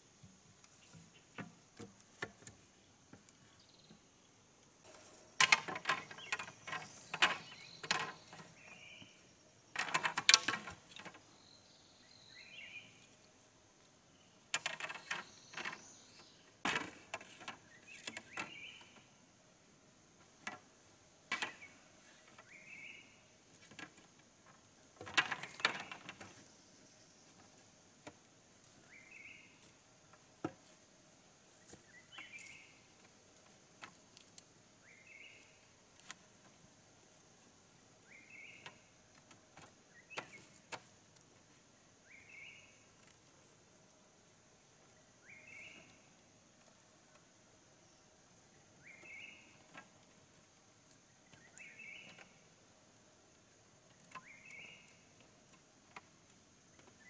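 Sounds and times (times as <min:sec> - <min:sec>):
bamboo poles knocking and clattering: 0:00.9 - 0:04.0, 0:04.9 - 0:08.8, 0:09.7 - 0:11.3, 0:14.5 - 0:19.0, 0:20.2 - 0:22.5, 0:23.5 - 0:26.5, 0:30.1 - 0:30.8, 0:38.6 - 0:41.3.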